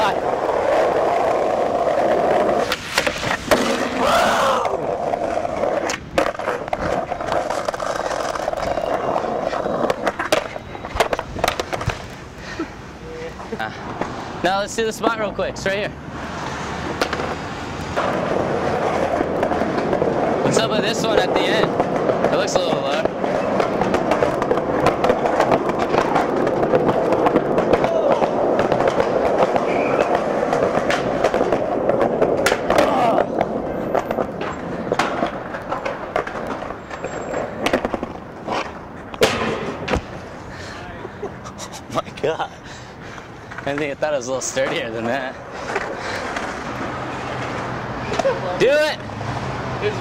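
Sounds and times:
skateboard wheels rolling on stone: 0.0 - 41.3, 42.0 - 50.0
skateboard clacking on ledge: 0.1 - 12.2, 16.9 - 40.2.

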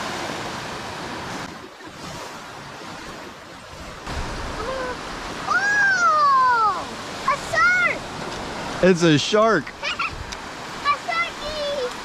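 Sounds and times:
surf waves washing up beach: 0.0 - 12.0.

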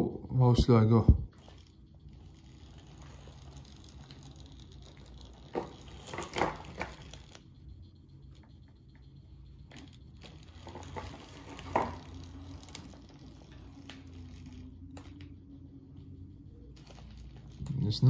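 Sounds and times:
faint motor hum: 0.0 - 18.0.

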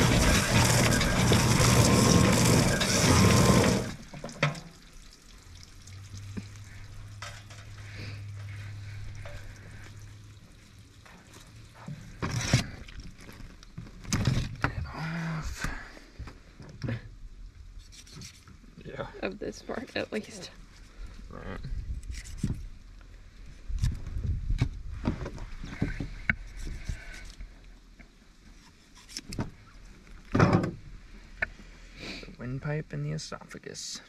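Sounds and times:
water running hard: 0.0 - 4.8.

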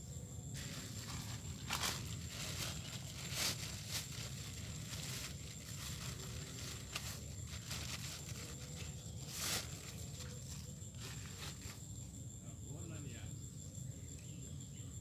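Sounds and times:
crinkling rustles: 0.6 - 11.9.

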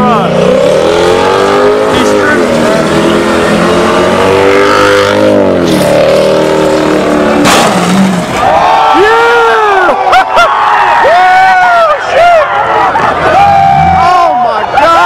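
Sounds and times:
car engine at high revs: 0.0 - 8.4.

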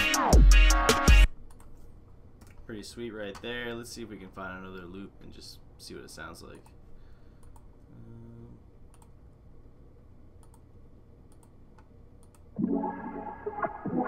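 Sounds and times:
computer mouse clicks: 7.4 - 7.7, 8.9 - 9.2, 10.4 - 10.7, 11.3 - 12.5.

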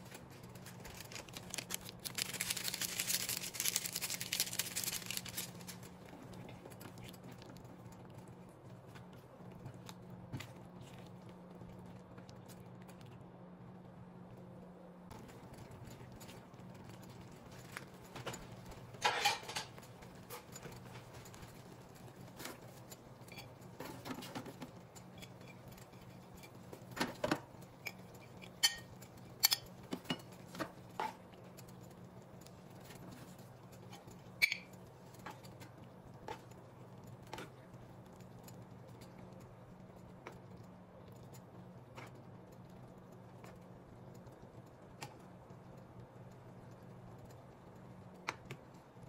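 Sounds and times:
utensils clinking on skillet and plate: 18.2 - 21.2, 22.4 - 30.4.

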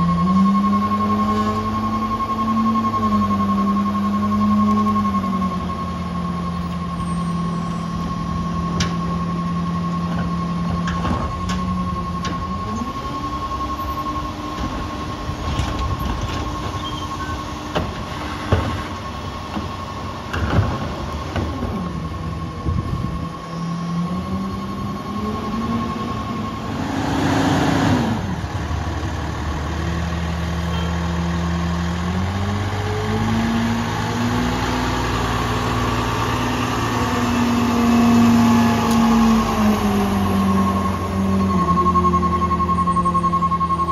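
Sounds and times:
high-pitched warning beeping: 0.0 - 17.7, 22.0 - 28.4, 30.4 - 31.8, 38.4 - 43.9
truck engine revving: 0.0 - 43.9.

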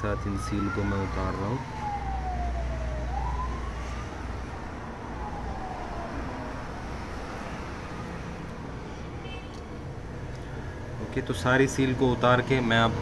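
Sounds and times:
wailing siren: 0.0 - 8.6.

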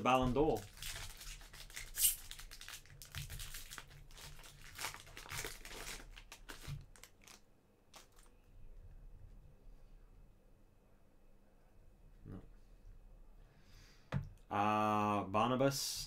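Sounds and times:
wrapper crinkling and tearing: 0.0 - 8.3.

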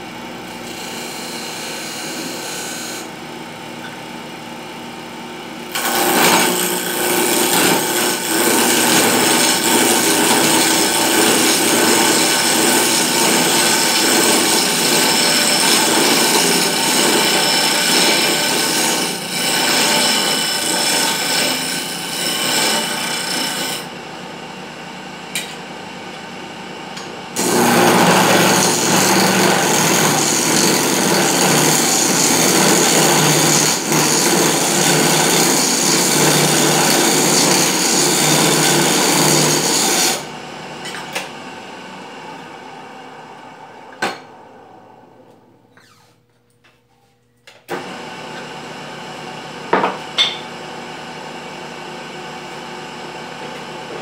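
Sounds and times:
wood lathe motor hum: 5.7 - 23.9, 27.4 - 40.3
rasping of spinning wood: 27.4 - 40.2.

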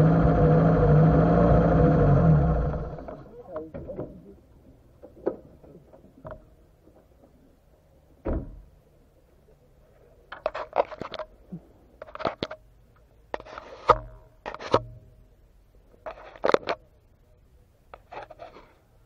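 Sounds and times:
heavy thump: 8.2 - 8.7
rubbing against camera housing: 13.4 - 14.7, 18.0 - 18.8.

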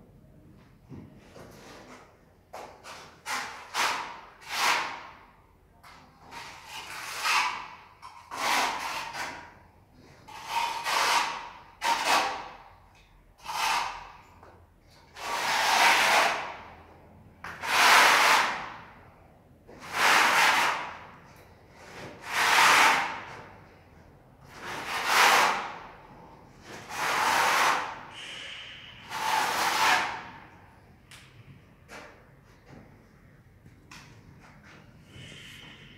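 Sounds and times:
trowel scraping adhesive on wall: 1.5 - 5.2, 6.2 - 12.6, 13.4 - 14.3, 15.1 - 16.7, 17.4 - 18.9, 19.8 - 23.5, 24.4 - 30.5.

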